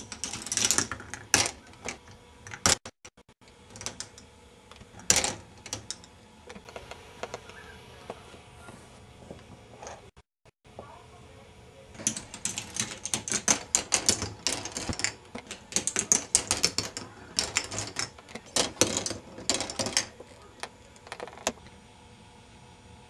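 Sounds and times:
plastic clicking and clattering: 12.0s - 21.6s.

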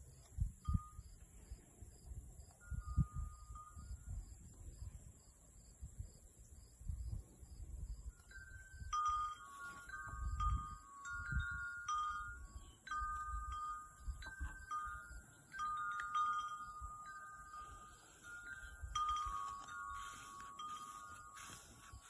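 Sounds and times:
wind chimes ringing: 0.4s - 1.4s, 2.4s - 4.6s, 7.9s - 22.0s.

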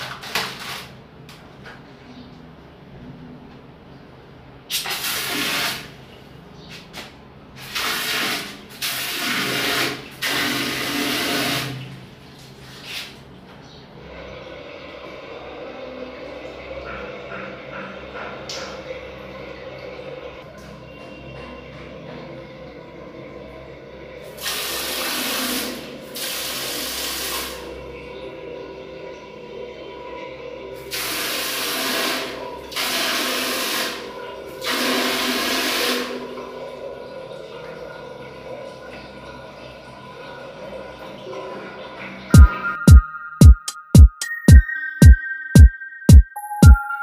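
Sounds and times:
water sprayer hissing into toilet bowl: 4.7s - 5.9s, 7.6s - 11.8s, 24.4s - 27.7s, 30.9s - 36.2s.

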